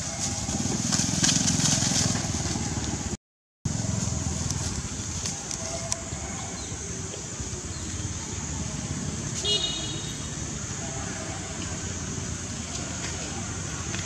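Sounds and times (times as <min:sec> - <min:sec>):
distant road traffic rumble: 0:00.0 - 0:14.0
high traffic hiss: 0:03.7 - 0:14.0.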